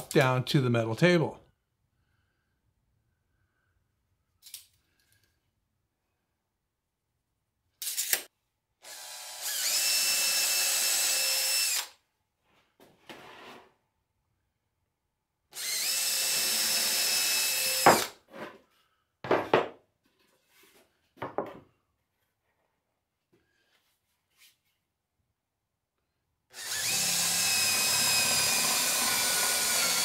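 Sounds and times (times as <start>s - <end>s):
cordless drill whining: 8.8s - 12.0s, 15.5s - 18.2s, 26.5s - 30.0s.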